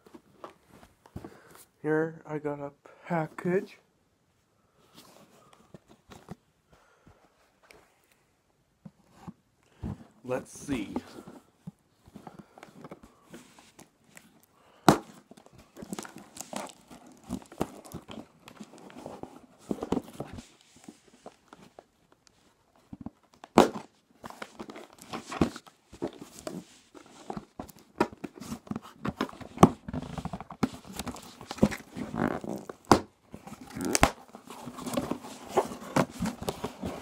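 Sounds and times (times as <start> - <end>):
cardboard box tearing and crinkling: 27.7 - 37.0.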